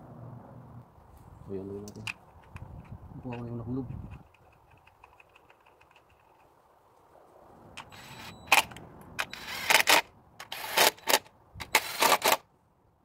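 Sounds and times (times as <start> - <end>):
impact driver bursts: 9.2 - 12.4.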